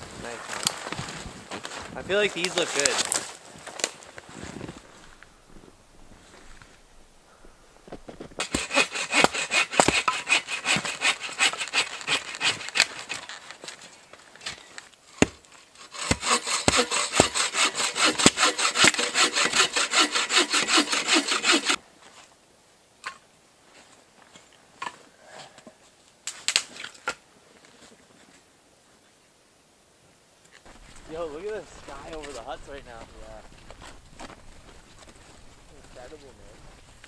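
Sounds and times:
hand saw cutting wood: 0:08.4 - 0:13.2, 0:15.1 - 0:21.8, 0:31.1 - 0:32.4.

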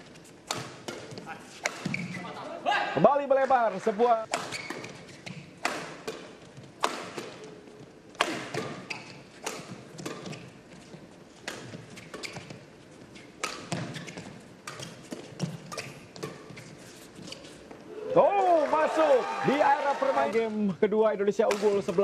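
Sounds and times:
racket hitting shuttlecock: 0:00.0 - 0:02.4, 0:04.2 - 0:16.7, 0:21.5 - 0:22.0.

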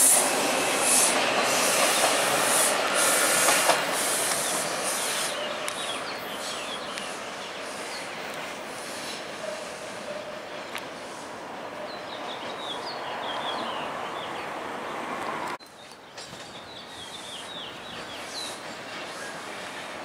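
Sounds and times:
subway train rumbling: 0:00.0 - 0:20.0
songbird chirping: 0:04.3 - 0:08.5, 0:11.8 - 0:15.0.

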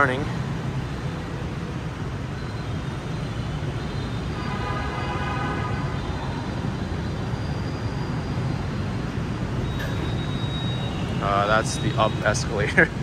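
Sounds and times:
road traffic drone: 0:00.0 - 0:13.0
high steady tones: 0:09.3 - 0:12.7.

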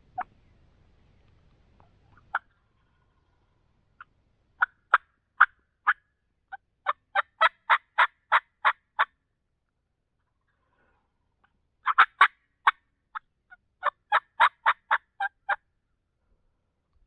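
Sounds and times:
turkey yelping: 0:01.8 - 0:03.3, 0:04.0 - 0:06.1, 0:06.8 - 0:09.2, 0:11.8 - 0:13.2, 0:13.8 - 0:15.6.

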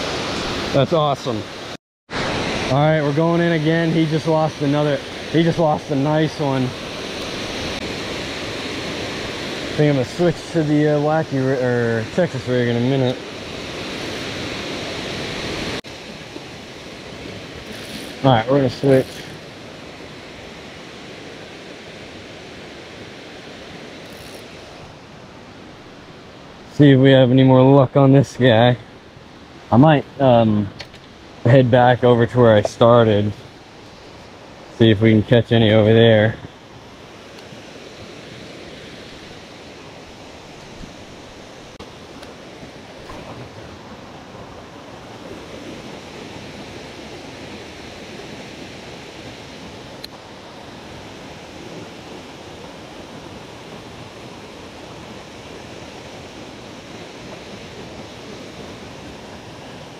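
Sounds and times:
waterfall rushing into pool: 0:00.0 - 0:24.9.

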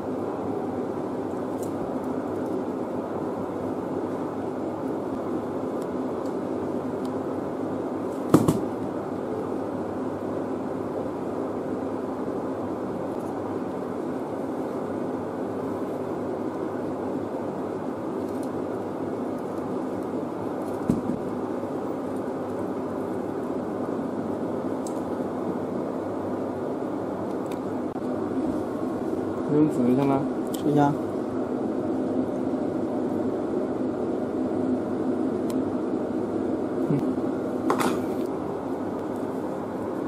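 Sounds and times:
room hum: 0:00.0 - 0:40.0
sharp knock: 0:08.3 - 0:08.7.

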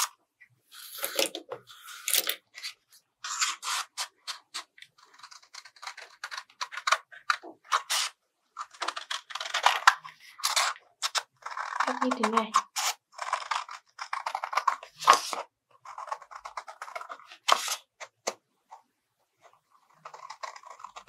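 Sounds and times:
scissors cutting cardboard: 0:00.9 - 0:18.4, 0:19.7 - 0:21.0.

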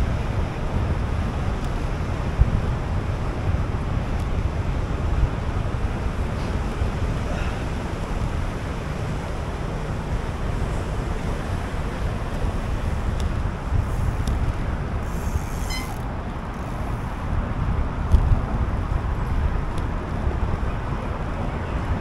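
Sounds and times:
wind rushing over microphone: 0:00.0 - 0:22.0
brief high-pitched ringing: 0:15.6 - 0:16.0.

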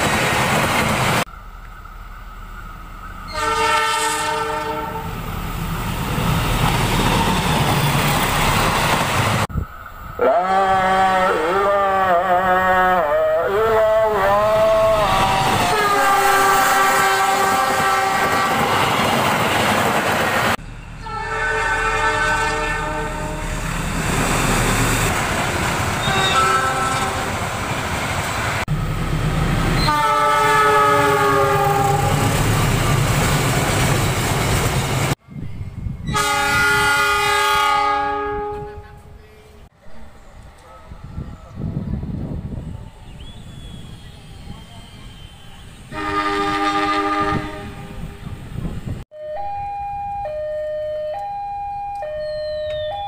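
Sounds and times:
train rumble and wheel clatter: 0:00.0 - 0:10.2, 0:13.0 - 0:49.1
locomotive horn blasts: 0:03.3 - 0:05.2, 0:10.2 - 0:18.8, 0:21.0 - 0:23.6, 0:26.0 - 0:27.4, 0:29.8 - 0:32.3, 0:36.0 - 0:39.2, 0:45.9 - 0:48.2.

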